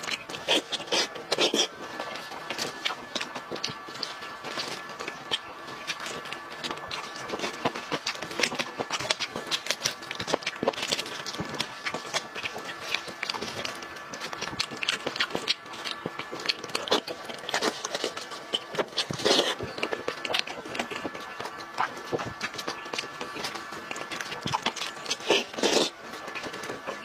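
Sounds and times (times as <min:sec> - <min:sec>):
chewing: 0:00.0 - 0:27.0.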